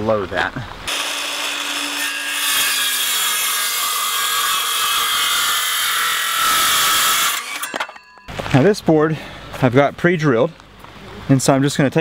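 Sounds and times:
circular saw cutting wood: 0.9 - 8.2.

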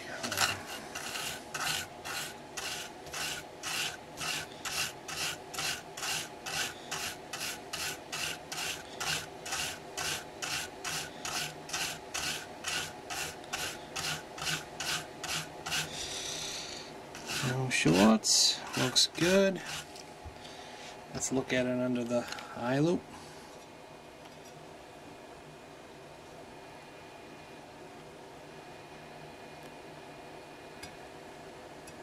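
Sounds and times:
toothbrush scrubbing circuit board: 0.2 - 16.0, 17.2 - 19.9.

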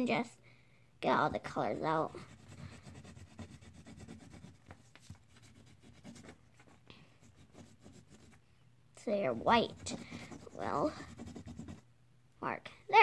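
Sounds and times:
crayon scratching on paper: 1.6 - 8.4, 9.2 - 11.8.

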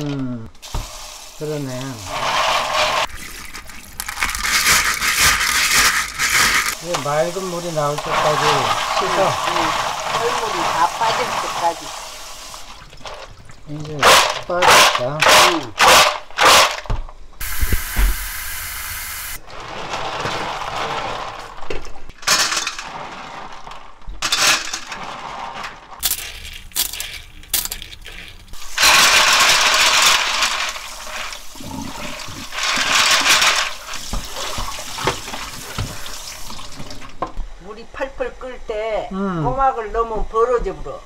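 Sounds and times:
kitchen tap running: 0.5 - 14.6, 17.4 - 19.4, 27.5 - 37.4
shells clattering and clinking: 26.0 - 30.8.

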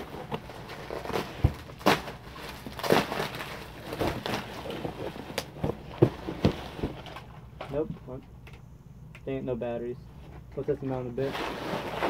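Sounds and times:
bubble wrap rustling and crinkling: 0.0 - 7.3, 11.2 - 12.0.

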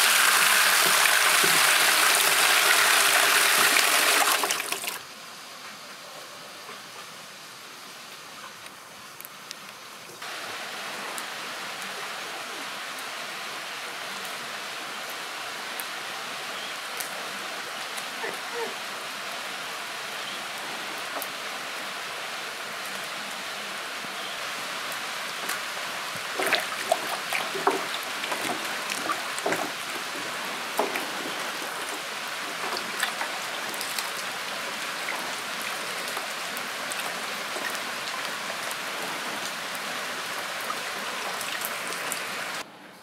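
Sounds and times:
steady rain falling: 0.0 - 42.7.

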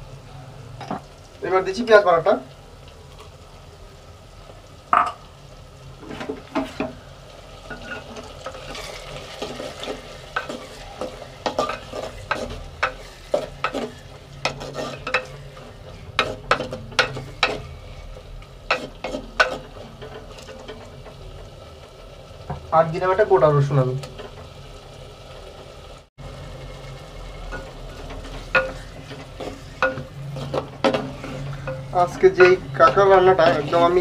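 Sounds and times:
oil sizzling: 0.0 - 34.0
spoon scraping clay pot: 7.7 - 17.8, 27.5 - 34.0.

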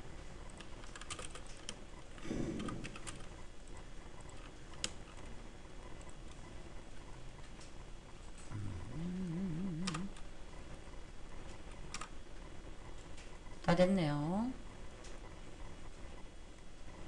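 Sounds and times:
keyboard keys clicking: 0.5 - 1.8, 9.7 - 10.2.

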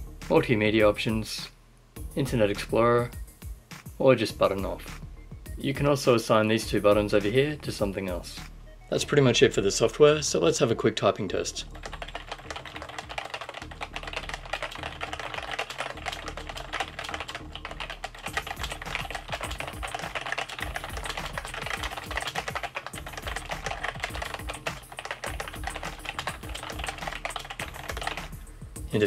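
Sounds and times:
fast typing on a keyboard: 11.7 - 28.4.

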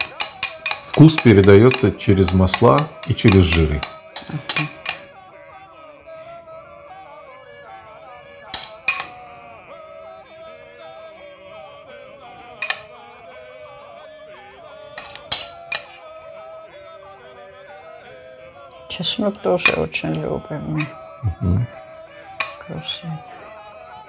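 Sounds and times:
metal spoon clinking glass bowl: 0.0 - 5.1, 8.5 - 9.3, 12.6 - 13.0, 15.0 - 16.0, 19.6 - 21.1, 22.4 - 23.0
background music: 0.0 - 24.0.

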